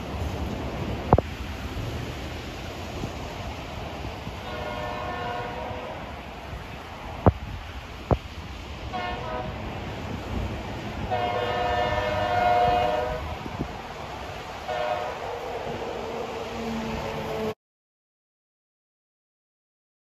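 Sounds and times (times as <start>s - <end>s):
distant train horn: 4.3s - 6.3s, 8.9s - 9.8s, 11.0s - 13.6s, 14.6s - 17.6s.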